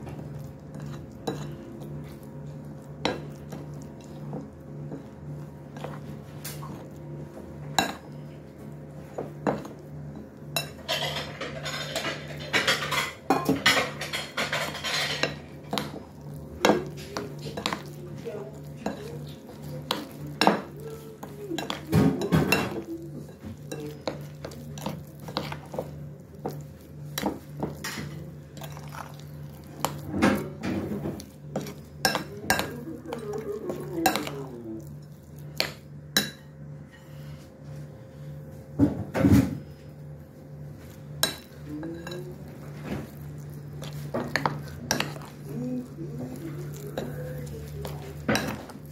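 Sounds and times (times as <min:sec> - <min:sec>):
spoon stirring thick batter: 0:00.0 - 0:37.5, 0:40.2 - 0:48.9.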